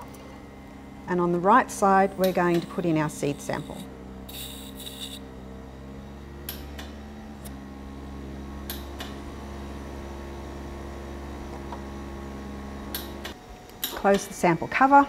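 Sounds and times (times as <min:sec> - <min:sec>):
electrical equipment hum: 0:00.0 - 0:15.0.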